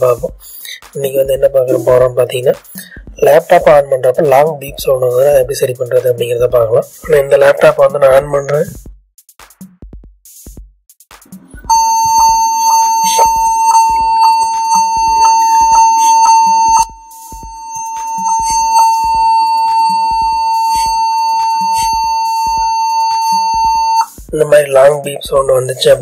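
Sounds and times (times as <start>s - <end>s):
electronic music with steady beat: 0.0s - 26.0s
laptop long beep: 11.6s - 24.1s.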